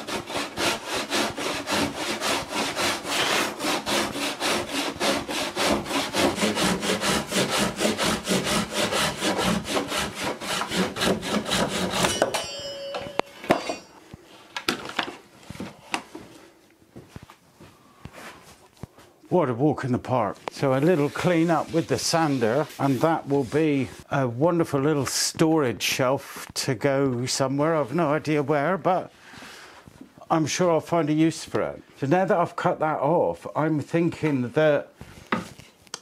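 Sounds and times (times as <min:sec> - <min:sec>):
handsaw cutting wood: 0:00.0 - 0:12.3.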